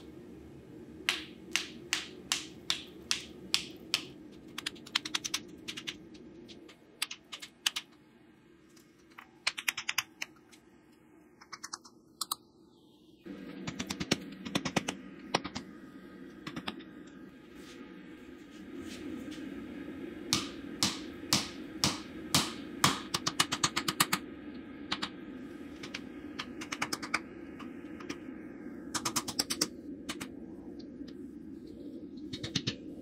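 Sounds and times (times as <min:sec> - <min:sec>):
low hum: 0:00.0 - 0:33.0
hammer blows on hot steel: 0:20.3 - 0:23.6.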